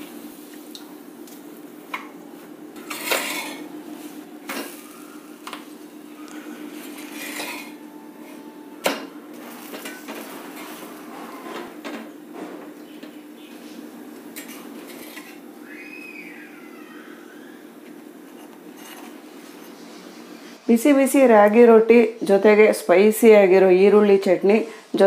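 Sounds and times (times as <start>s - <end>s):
metal spatula scraping griddle: 2.8s - 3.7s, 6.5s - 8.4s, 9.4s - 11.8s, 14.4s - 15.4s, 18.2s - 20.1s.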